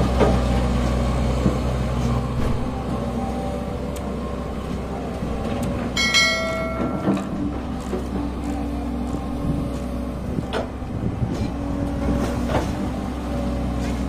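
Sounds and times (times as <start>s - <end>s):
excavator diesel engine running: 0.0s - 14.0s
short metallic ring: 6.0s - 7.4s.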